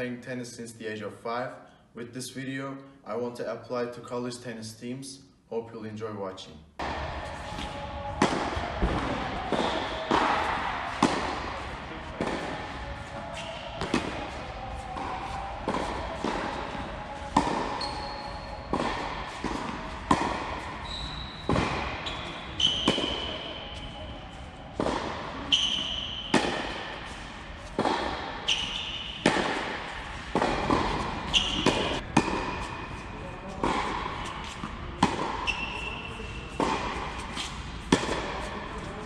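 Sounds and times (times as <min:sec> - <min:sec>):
tennis ball bouncing: 0:06.8 - 0:38.9
tennis racket hitting ball: 0:06.8 - 0:39.0
tennis shoes squeaking on court: 0:12.2 - 0:14.0, 0:17.4 - 0:19.9, 0:20.6 - 0:24.4, 0:25.4 - 0:29.6, 0:30.4 - 0:32.0, 0:34.2 - 0:38.2.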